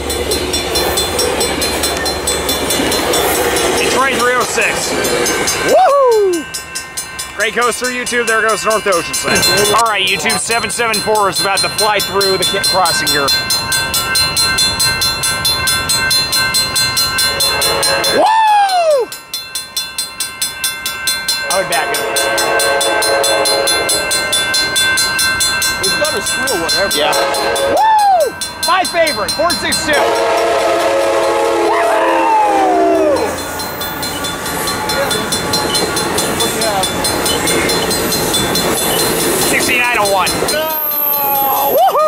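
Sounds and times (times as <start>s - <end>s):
railroad crossing bells ringing: 0.0s - 41.8s
train rumbling: 0.0s - 42.0s
locomotive horn chord: 17.2s - 18.2s, 21.6s - 24.2s, 27.1s - 27.8s, 30.0s - 33.0s
loud whoop rising and falling: 31.6s - 33.4s, 41.0s - 42.0s
rhythmic wheel clicks: 33.2s - 41.2s.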